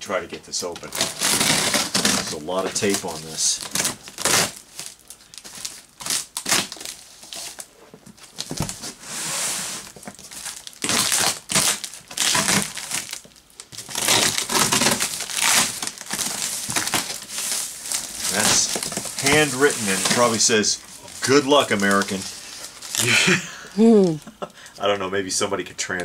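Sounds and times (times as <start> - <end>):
tape and cardboard crackling: 0.5 - 23.3.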